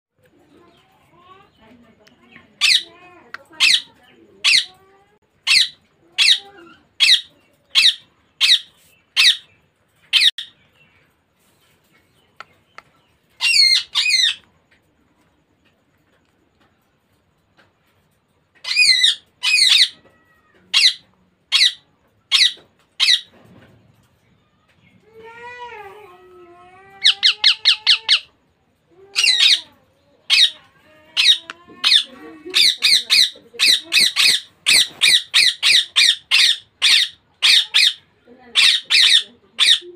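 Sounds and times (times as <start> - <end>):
parakeet squawking: 2.6 - 3.0, 3.6 - 4.7, 5.4 - 9.5, 13.4 - 14.4, 18.6 - 20.0, 20.7 - 23.3, 27.0 - 28.3, 29.1 - 29.6, 30.3 - 30.6, 31.2 - 39.9
parakeet wavering call: 27.0 - 28.3, 29.2 - 29.6, 31.2 - 38.0.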